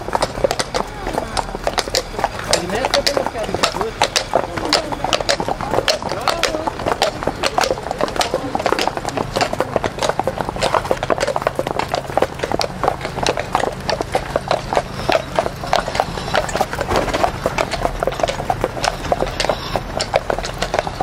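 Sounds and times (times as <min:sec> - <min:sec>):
horse hooves clip-clopping: 0:00.0 - 0:21.0.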